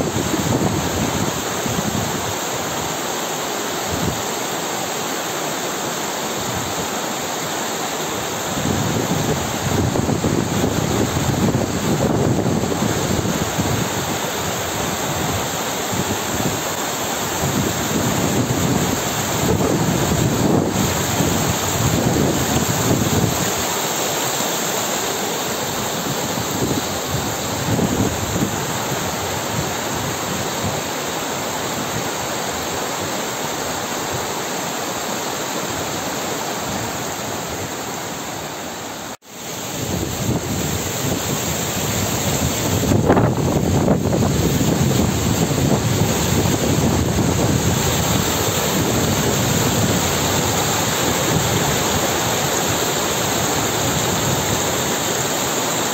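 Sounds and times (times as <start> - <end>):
water rushing down rocks: 0.0 - 55.9
wind buffeting microphone: 39.8 - 54.9.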